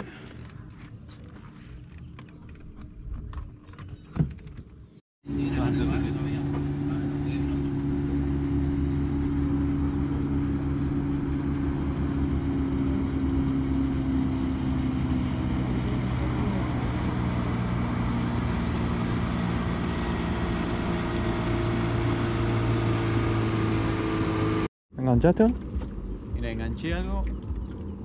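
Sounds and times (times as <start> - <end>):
outboard motor running: 5.2 - 24.7, 25.3 - 28.0.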